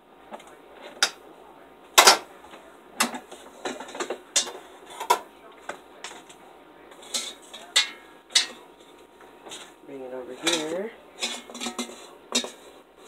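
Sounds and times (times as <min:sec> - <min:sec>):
kitchen utensils clicking and clattering: 0:02.0 - 0:02.3, 0:03.0 - 0:12.8.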